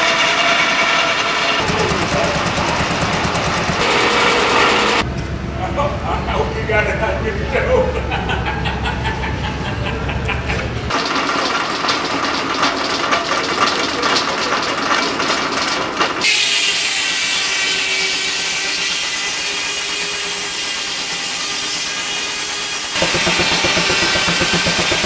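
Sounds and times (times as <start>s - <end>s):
sawmill clattering and knocking: 0.0s - 5.0s, 10.9s - 16.5s, 23.0s - 25.0s
saw high hiss: 3.8s - 5.0s, 16.3s - 25.0s.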